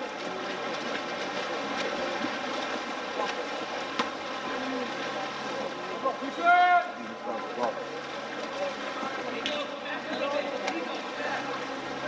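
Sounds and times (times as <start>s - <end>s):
water splashing in a pool: 0.0s - 12.0s
sharp slaps on water: 3.2s - 4.2s, 9.4s - 10.9s.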